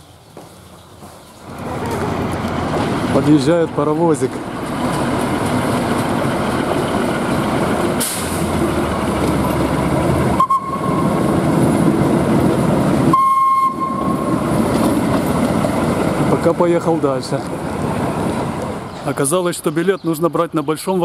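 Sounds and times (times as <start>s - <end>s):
diesel locomotive rumbling: 0.0s - 21.0s
high steady tone: 10.3s - 11.4s, 13.1s - 14.6s.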